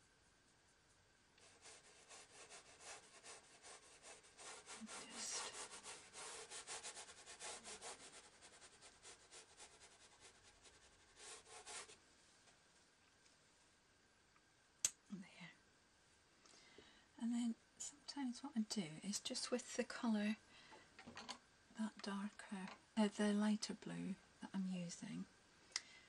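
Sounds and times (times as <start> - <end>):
paintbrush scratching on paper: 1.4 - 12.0.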